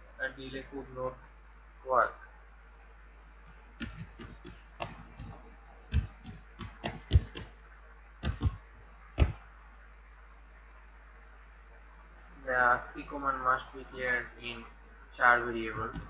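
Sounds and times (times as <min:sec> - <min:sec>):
computer keyboard typing: 0:03.8 - 0:07.5, 0:08.2 - 0:08.6.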